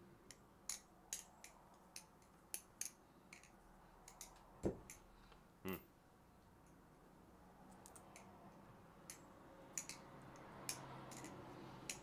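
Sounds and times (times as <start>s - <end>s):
butterfly knife clicking: 9.0s - 12.0s.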